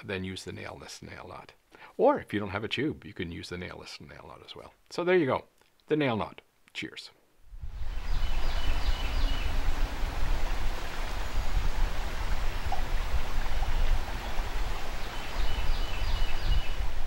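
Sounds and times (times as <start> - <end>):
wind rumbling on microphone: 7.5 - 17.0
river water flowing: 7.6 - 17.0.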